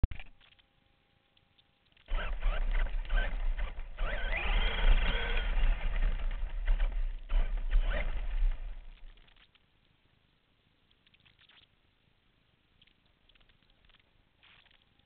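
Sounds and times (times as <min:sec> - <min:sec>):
low rumble of camera shaking: 0:02.0 - 0:09.7
toy truck motor whining: 0:02.1 - 0:09.1.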